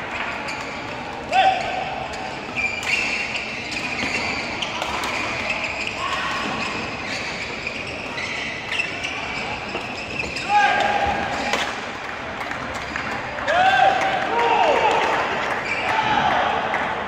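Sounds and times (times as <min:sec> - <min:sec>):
shoes squeaking on court: 0:00.1 - 0:11.9.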